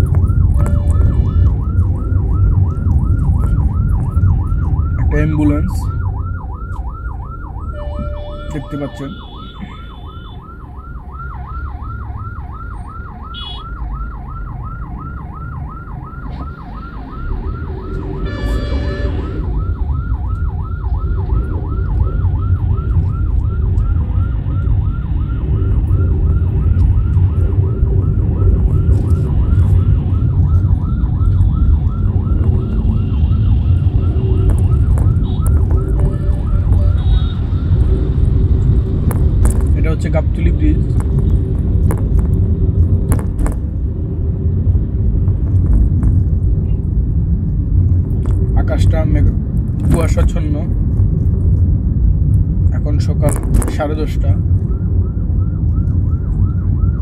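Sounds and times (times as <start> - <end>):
ambulance siren yelp: 0.0 - 43.0, 53.0 - 57.0
traffic rumble: 0.0 - 57.0
vehicle horn blaring: 0.6 - 1.3, 7.7 - 10.4, 13.4 - 13.6, 18.2 - 19.4, 36.1 - 37.4.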